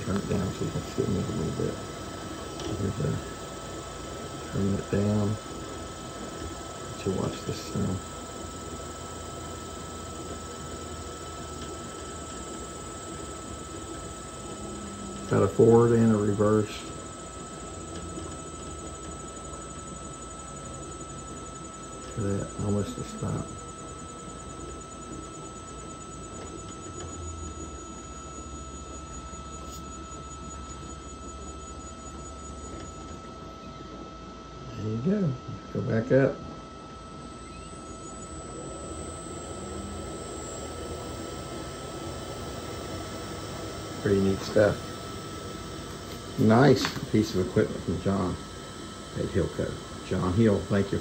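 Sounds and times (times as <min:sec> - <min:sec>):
honey extractor humming: 0:00.0 - 0:51.0.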